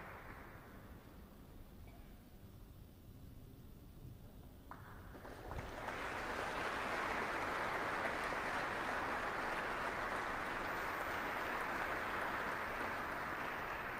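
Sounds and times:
audience applauding: 0:00.0 - 0:00.8, 0:05.1 - 0:13.9.

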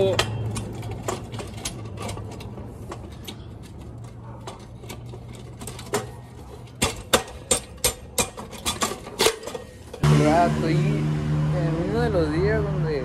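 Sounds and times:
steady low hum: 0:10.0 - 0:13.0.

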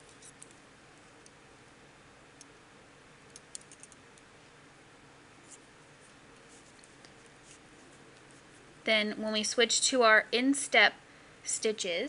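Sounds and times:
low hiss: 0:00.0 - 0:12.0
knitting needles clicking: 0:03.3 - 0:04.3.

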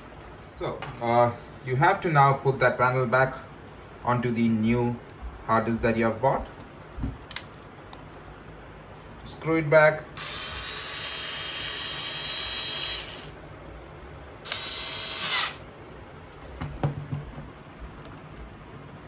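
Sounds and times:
electric screwdriver whirring: 0:10.2 - 0:13.3, 0:14.4 - 0:15.6.

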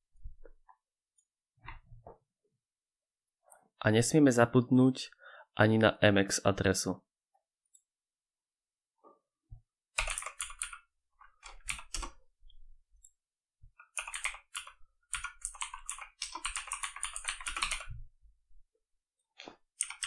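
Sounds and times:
computer keyboard typing: 0:10.0 - 0:12.2, 0:13.8 - 0:18.0, 0:19.8 - 0:20.0.

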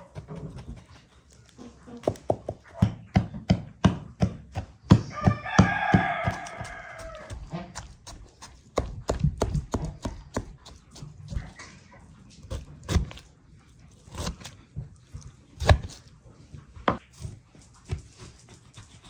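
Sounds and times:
rooster crowing: 0:05.0 - 0:07.4.

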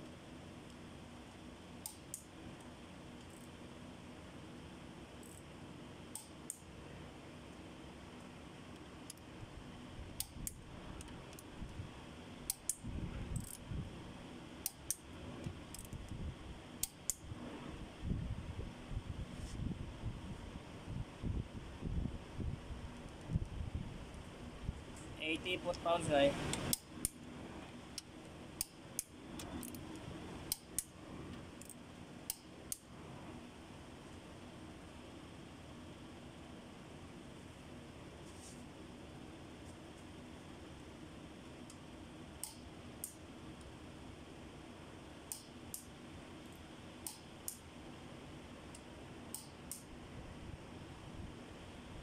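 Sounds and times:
torque wrench clicking: 0:01.8 - 0:02.3, 0:12.5 - 0:12.8, 0:13.4 - 0:13.6, 0:30.5 - 0:30.9, 0:42.4 - 0:43.2, 0:45.3 - 0:45.9.

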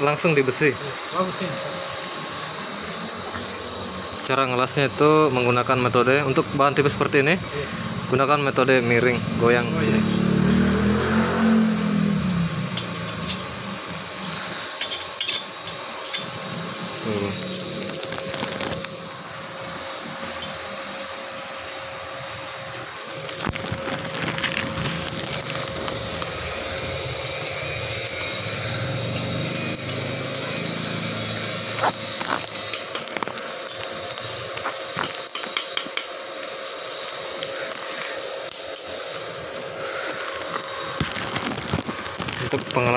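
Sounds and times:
droning hum: 0:00.0 - 0:42.9
welding arc crackling: 0:00.0 - 0:42.9.

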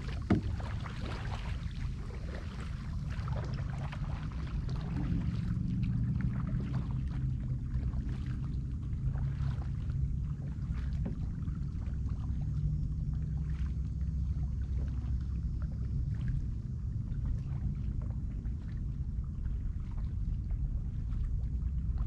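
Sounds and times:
paddle splashing in water: 0:00.0 - 0:16.5
steady low rumble: 0:00.0 - 0:22.0.

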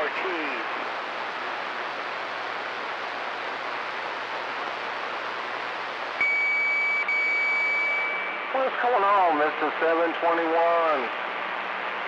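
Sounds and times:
radio static hiss: 0:00.0 - 0:12.0
steady high beep tone: 0:06.2 - 0:08.5.

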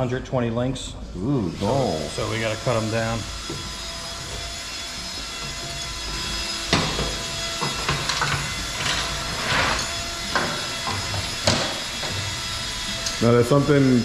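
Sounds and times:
rasping scrape: 0:01.5 - 0:13.3.

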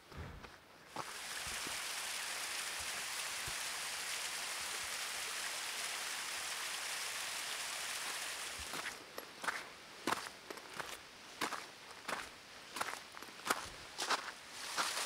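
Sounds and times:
brook rushing over rocks: 0:00.9 - 0:10.2.

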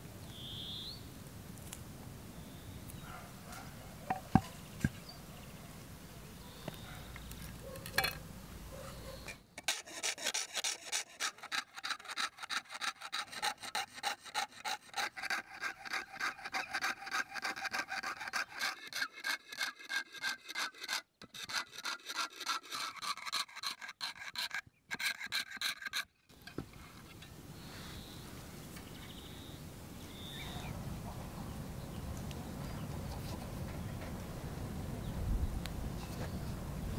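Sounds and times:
saw cutting sheet metal: 0:09.6 - 0:26.1.

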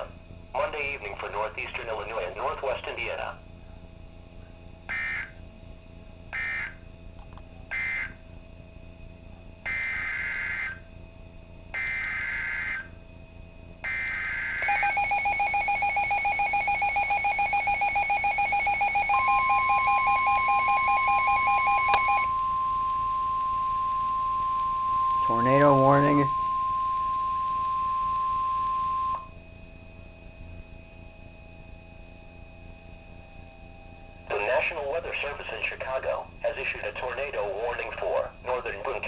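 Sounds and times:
data bursts from radio speaker: 0:00.0 - 0:03.0, 0:04.9 - 0:05.4, 0:06.4 - 0:06.8, 0:07.7 - 0:08.2, 0:09.7 - 0:10.8, 0:13.9 - 0:29.3, 0:34.3 - 0:39.0
pulsing two-tone alarm beep: 0:07.7 - 0:08.2, 0:09.7 - 0:10.8, 0:11.8 - 0:13.0, 0:13.8 - 0:29.4
steady warning alert tone: 0:13.8 - 0:29.3.

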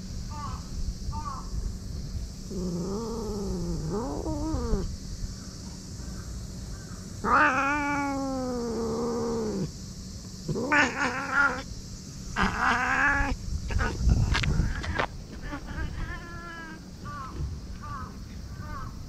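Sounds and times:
cat growling and yowling: 0:02.5 - 0:04.9, 0:07.2 - 0:09.7, 0:10.5 - 0:11.7, 0:12.4 - 0:14.0.

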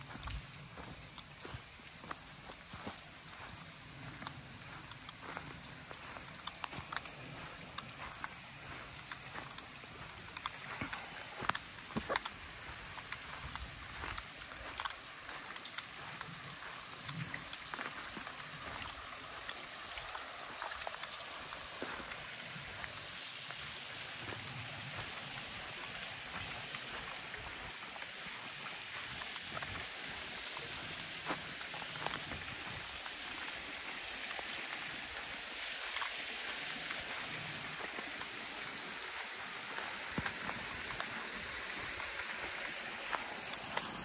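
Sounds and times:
light clicks and crackles: 0:00.0 - 0:23.0
water hissing: 0:00.0 - 0:44.0.

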